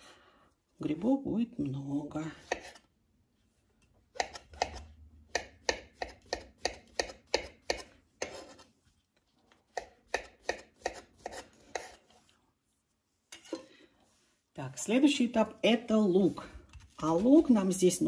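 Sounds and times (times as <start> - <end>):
knife slicing mushrooms on board: 2.4 - 2.8, 4.1 - 8.7, 9.7 - 12.0.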